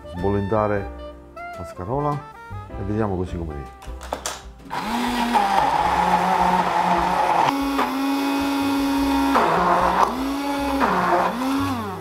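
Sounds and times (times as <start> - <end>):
immersion blender running: 4.7 - 12.0.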